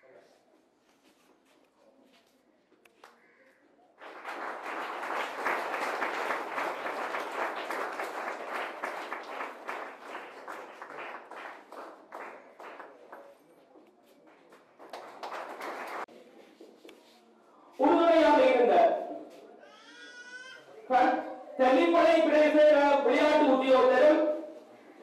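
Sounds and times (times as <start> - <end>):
audience applauding: 4.0 - 13.4, 14.3 - 16.1.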